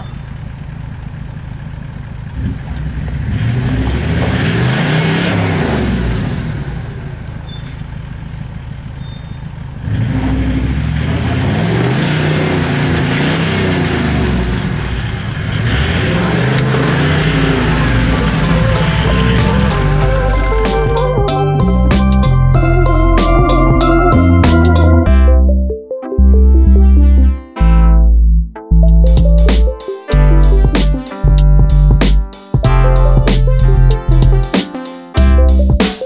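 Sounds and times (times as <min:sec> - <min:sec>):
vehicle engine revving: 0:02.2 - 0:07.5, 0:09.7 - 0:25.2.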